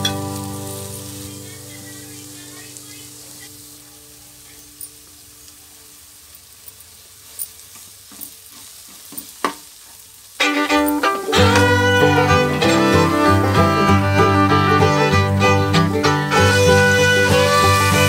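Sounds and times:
fiddle music: 0.0 - 4.6, 10.4 - 18.0
food sizzling in a pan: 0.0 - 18.0.

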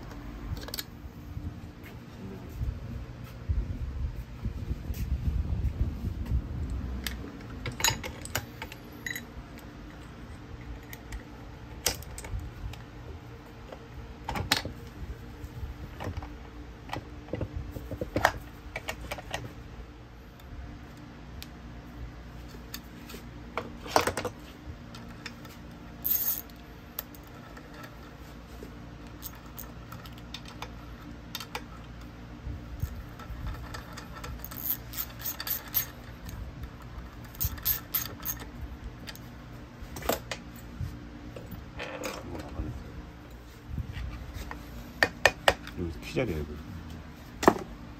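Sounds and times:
steady low hum: 0.0 - 47.9
metal parts clinking and knocking: 7.0 - 11.2, 25.0 - 28.2, 29.0 - 30.7, 32.8 - 39.2.

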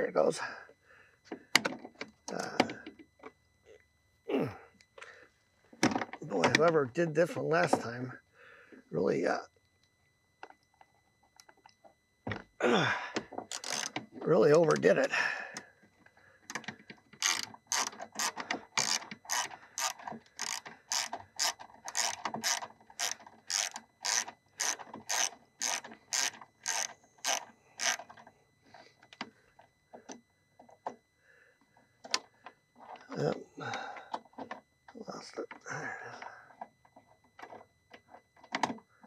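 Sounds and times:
socket ratchet clicking: 13.5 - 13.9, 17.2 - 28.0.

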